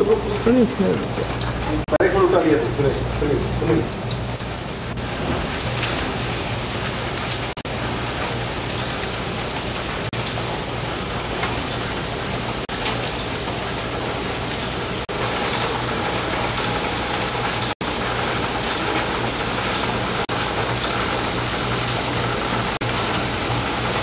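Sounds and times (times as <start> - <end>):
printing press running: 0.0 - 24.0.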